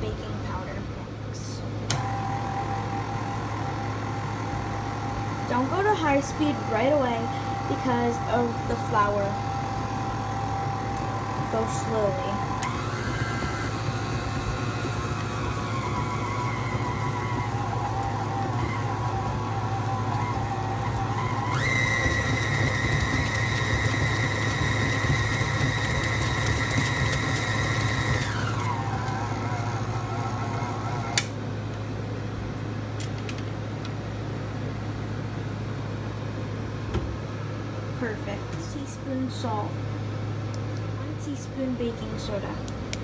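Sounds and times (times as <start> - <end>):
stand mixer motor whining: 1.9 - 31.3.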